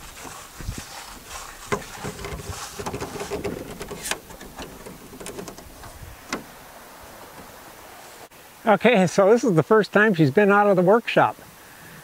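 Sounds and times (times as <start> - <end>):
footsteps crunching dry leaves: 0.0 - 2.8
canoe set down knock: 1.2 - 6.6.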